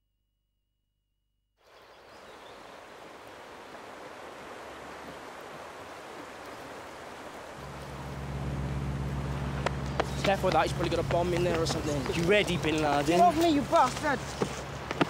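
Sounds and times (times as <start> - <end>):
river water rushing over rocks: 2.3 - 15.0
low steady hum: 6.8 - 15.0.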